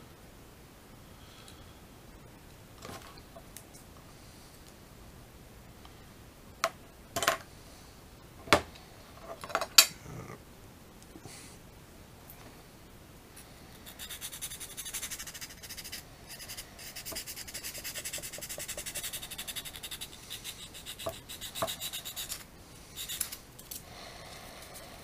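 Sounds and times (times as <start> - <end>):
metal file scraping plastic: 13.9 - 22.4.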